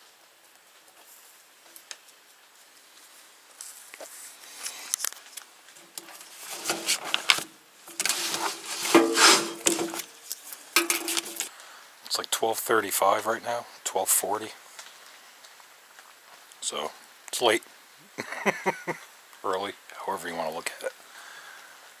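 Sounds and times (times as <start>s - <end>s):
gear and clothing rustling: 0.6s - 11.5s.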